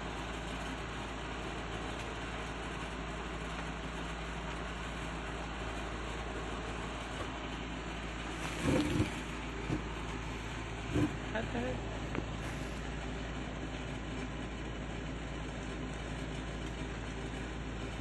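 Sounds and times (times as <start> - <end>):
low hum: 5.3 - 18.0.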